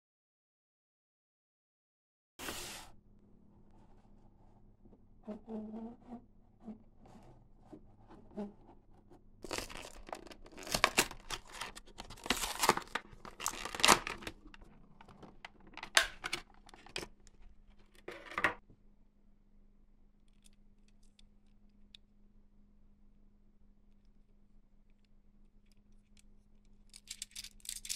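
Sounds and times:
packaging tearing and crinkling: 9.4 - 16.6.

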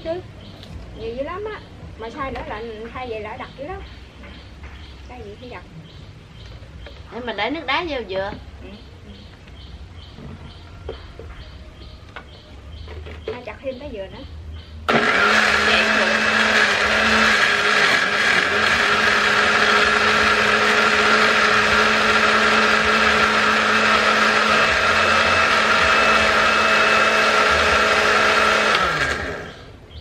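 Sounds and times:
blender motor winding down: 14.9 - 29.7
electric blender running: 14.9 - 29.7.

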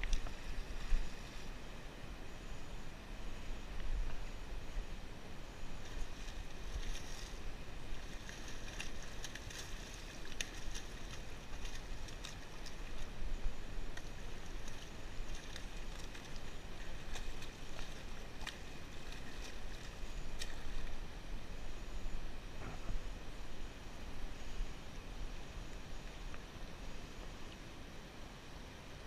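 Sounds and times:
wind rumbling on microphone: 0.0 - 27.9
water splashing against rocks: 5.6 - 21.1.

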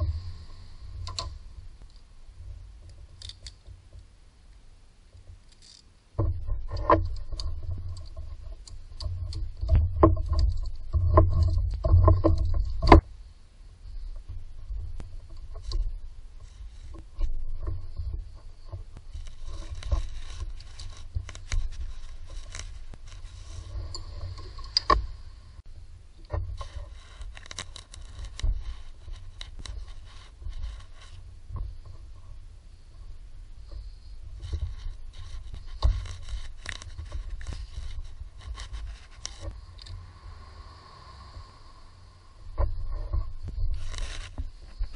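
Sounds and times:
tools scraping and clicking: 5.2 - 13.1.

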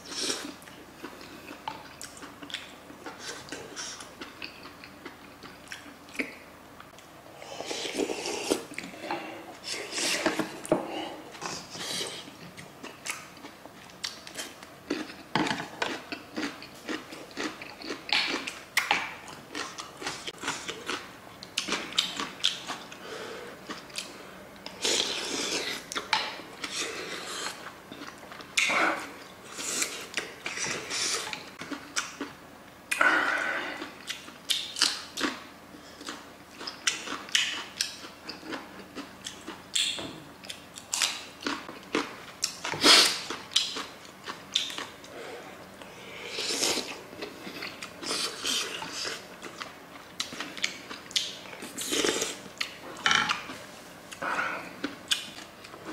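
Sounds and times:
chewing and biting food: 11.4 - 23.0, 33.8 - 45.1.

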